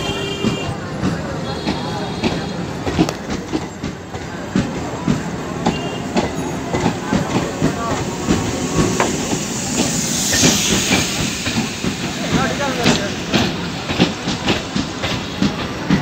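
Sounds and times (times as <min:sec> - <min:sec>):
train wheels clattering over rail joints: 0:00.0 - 0:16.0
hiss: 0:07.2 - 0:15.6.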